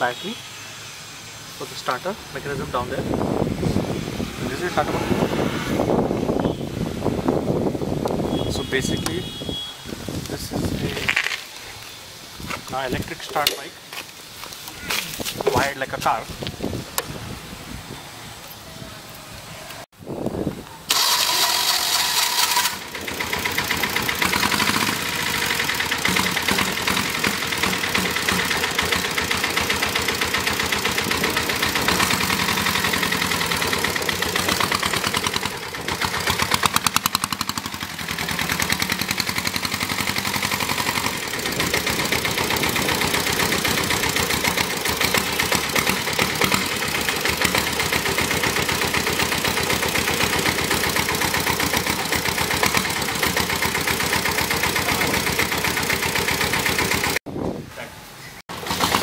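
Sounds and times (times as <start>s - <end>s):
diesel engine idling and revving: 0.9s - 9.4s, 20.9s - 57.2s, 58.5s - 59.0s.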